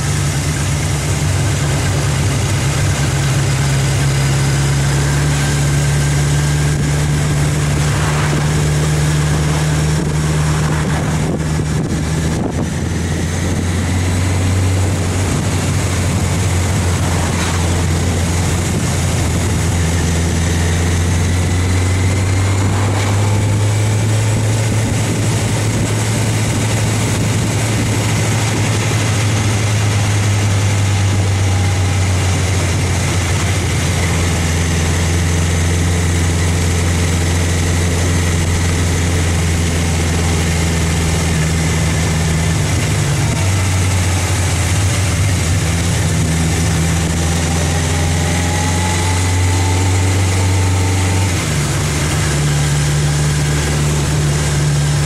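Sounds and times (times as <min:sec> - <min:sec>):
road and wind noise: 0:00.0 - 0:55.0
vehicle engine droning: 0:00.0 - 0:55.0.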